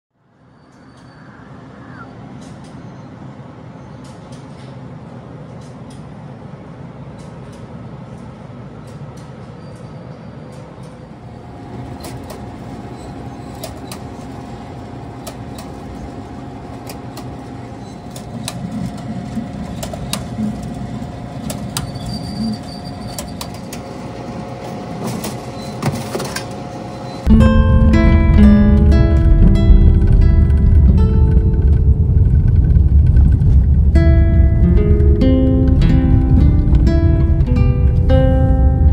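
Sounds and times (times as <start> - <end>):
conveyor toaster hum: 10.6 - 38.9
low background rumble: 27.2 - 38.9.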